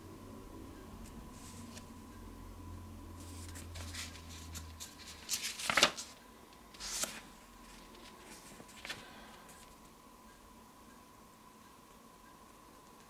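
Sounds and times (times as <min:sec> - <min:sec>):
paper pages rustling: 0:03.2 - 0:06.2, 0:06.8 - 0:09.8.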